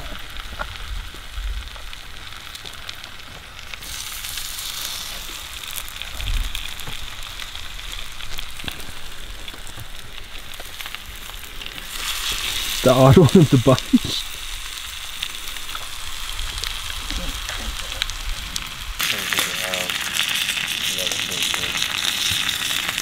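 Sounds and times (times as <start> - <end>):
fish sizzling on a griddle: 0.0 - 23.0.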